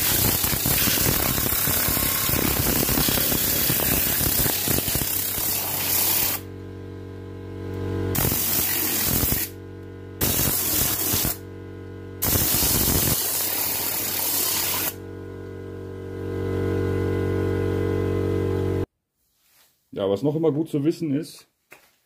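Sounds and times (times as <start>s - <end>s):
air blow gun hissing: 0.0s - 6.4s, 8.2s - 9.5s, 10.2s - 11.4s, 12.2s - 15.0s.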